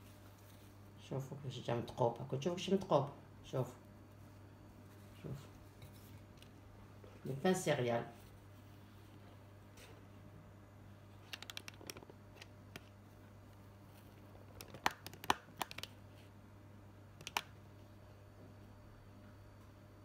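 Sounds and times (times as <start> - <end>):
faint steady low hum: 0.0 - 20.0.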